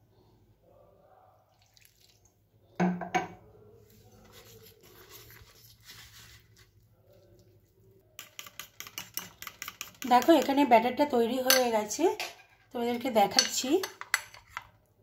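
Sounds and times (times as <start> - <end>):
water pouring into flour: 1.5 - 2.4.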